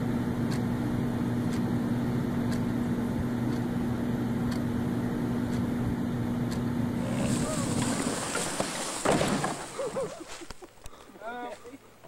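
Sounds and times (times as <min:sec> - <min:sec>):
low steady hum: 0:00.0 - 0:12.0
wall clock ticking: 0:02.5 - 0:02.7.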